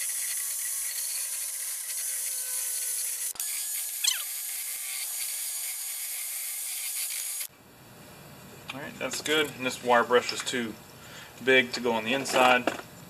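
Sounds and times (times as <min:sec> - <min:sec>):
wire brush squealing: 0:04.0 - 0:04.3.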